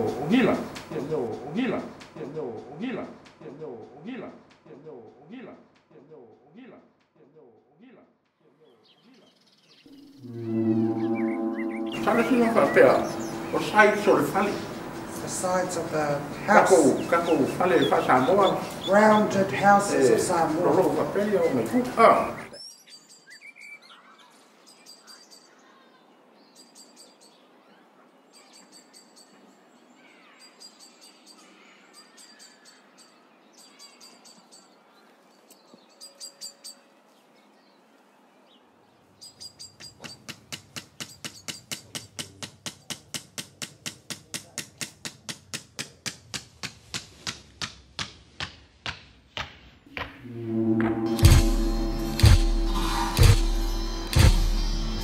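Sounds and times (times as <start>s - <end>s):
wooden mallet tapping tattooing comb: 40.0s - 49.5s.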